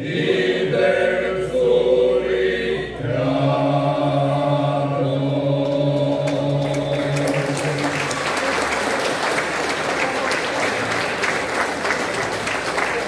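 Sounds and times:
men's vocal group singing: 0.0 - 7.8
audience applause: 6.2 - 13.0.

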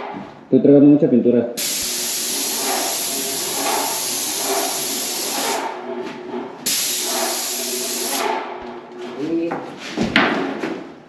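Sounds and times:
paint sprayer hissing: 1.6 - 5.7, 6.6 - 8.4.

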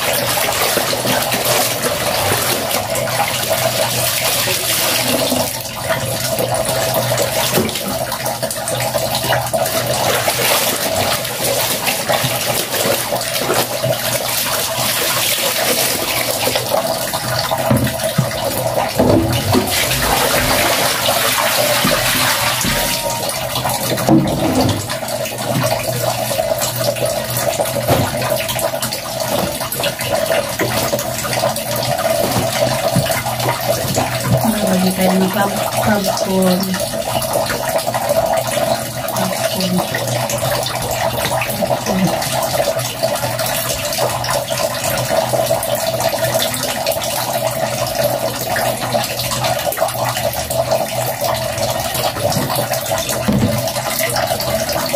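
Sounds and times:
water running from a tap: 0.0 - 54.9
water splashing in a basin: 0.0 - 54.9.

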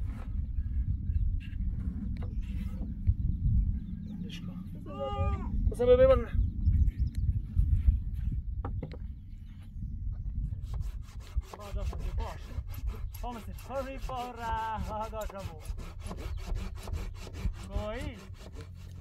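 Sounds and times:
rasping strokes on wood: 10.6 - 19.0.

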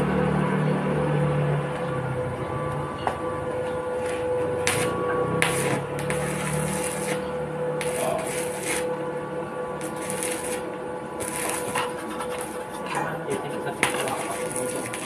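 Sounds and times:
steady hum: 0.0 - 15.0
welding arc crackling: 3.7 - 15.0.

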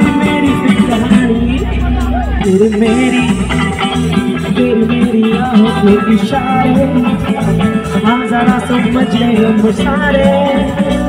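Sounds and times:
electric guitar: 0.0 - 11.0
live band amplified music: 0.0 - 11.0
person singing into microphone: 0.0 - 11.0
steady beat: 0.0 - 11.0.

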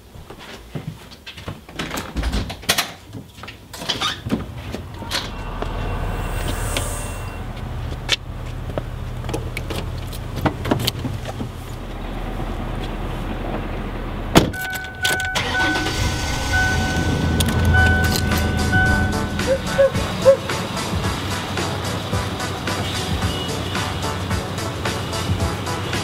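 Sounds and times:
car engine running low: 4.2 - 22.7
dashboard warning chime: 14.5 - 21.2.

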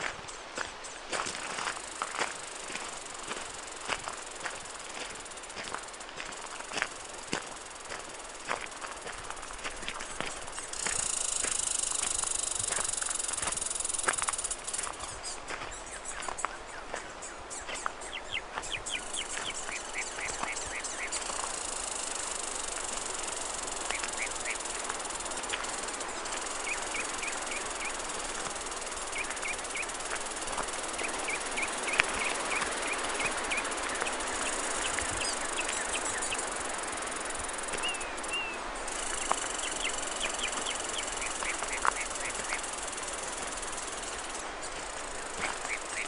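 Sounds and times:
light footsteps: 0.0 - 38.0, 38.6 - 46.0
wind through trees: 0.0 - 46.0
bird chirping: 15.0 - 21.6, 37.8 - 42.6.

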